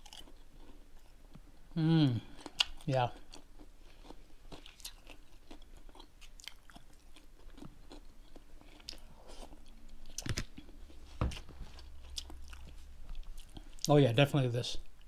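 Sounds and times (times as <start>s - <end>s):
person chewing crunchy food: 0.0s - 13.9s.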